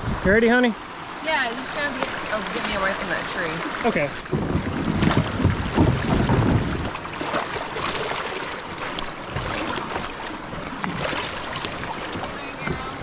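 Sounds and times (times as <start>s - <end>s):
wind rumble on microphone: 0.0s - 0.4s, 4.2s - 7.2s
river water running over rocks: 0.5s - 13.0s
light water splashes: 0.6s - 13.0s
knocks: 4.3s - 6.7s.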